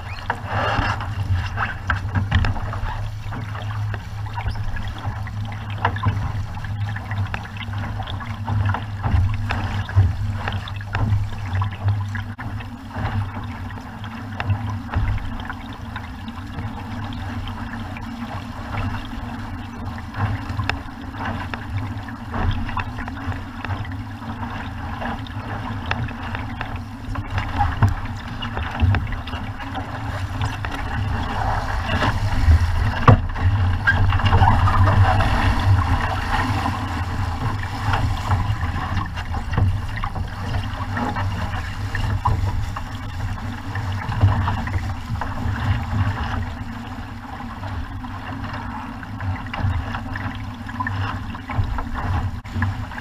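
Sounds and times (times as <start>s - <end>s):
hull rushing through water: 0.0s - 53.0s
wind buffeting microphone: 16.6s - 47.2s.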